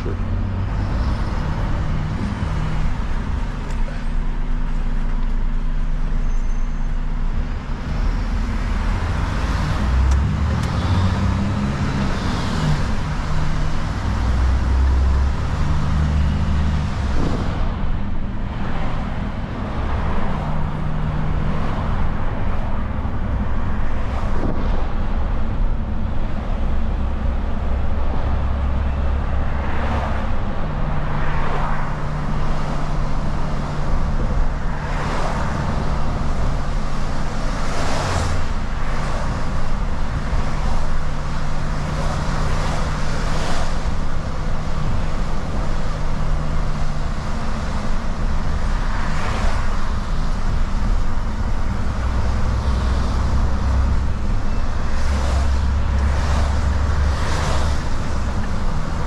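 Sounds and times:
truck diesel engine running: 0:00.0 - 0:59.0
vehicles swishing past: 0:26.5 - 0:59.0
tyre noise on wet road: 0:27.8 - 0:59.0.

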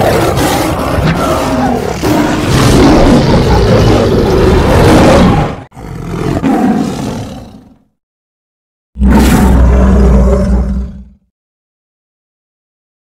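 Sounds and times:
big cat roaring: 0:00.0 - 0:07.8, 0:09.0 - 0:11.3.

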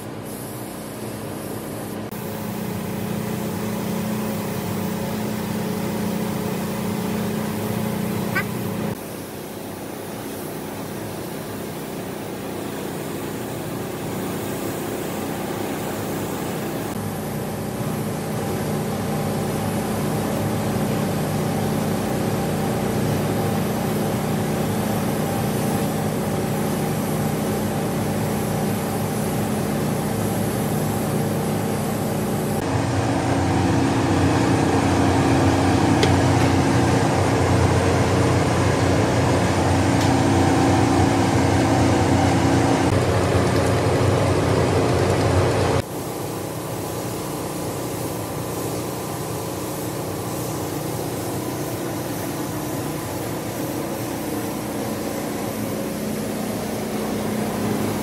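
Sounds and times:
spray gun hissing: 0:00.0 - 0:32.8, 0:45.8 - 0:58.0
air system drone: 0:00.0 - 0:58.0
loud steady machine hum: 0:00.0 - 0:58.0.

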